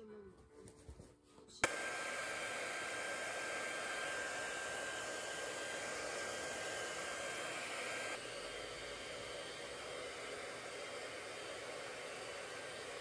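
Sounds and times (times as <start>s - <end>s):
hair dryer switch click: 1.6s - 4.5s
hair dryer running: 1.6s - 13.0s.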